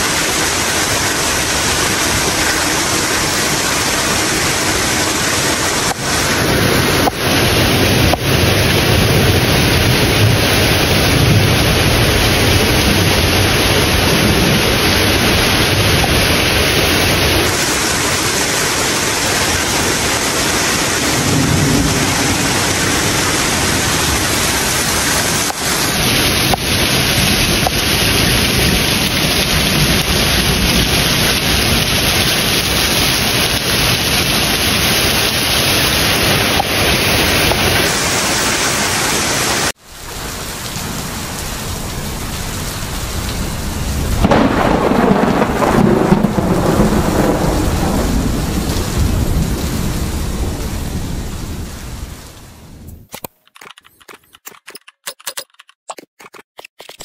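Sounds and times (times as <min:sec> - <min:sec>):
heavy rain pouring: 0:00.0 - 0:52.9
low rumble of thunder: 0:21.0 - 0:24.4, 0:42.0 - 0:52.2.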